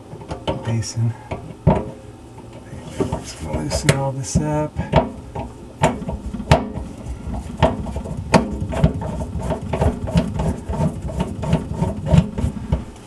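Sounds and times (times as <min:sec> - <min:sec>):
metal clicks and knocks: 0:00.0 - 0:12.8.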